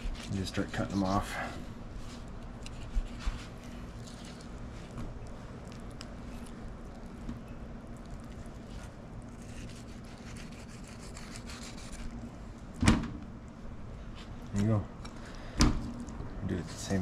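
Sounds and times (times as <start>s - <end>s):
low background hum: 0.0s - 17.0s
knife slicing fish: 8.7s - 12.1s.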